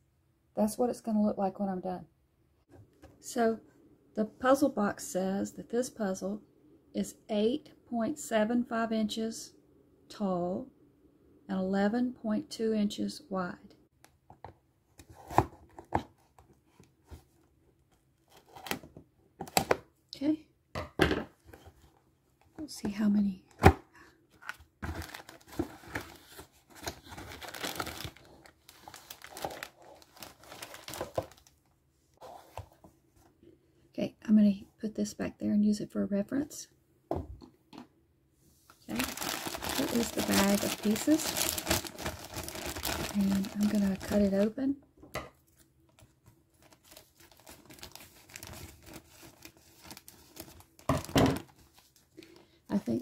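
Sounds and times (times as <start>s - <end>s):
plastic bag crinkling: 24.4s - 31.6s, 38.9s - 44.5s, 46.0s - 52.0s.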